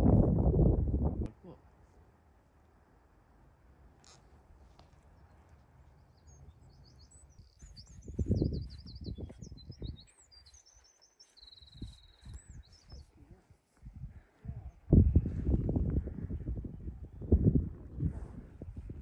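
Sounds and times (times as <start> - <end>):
small birds singing: 4.1 - 13.5.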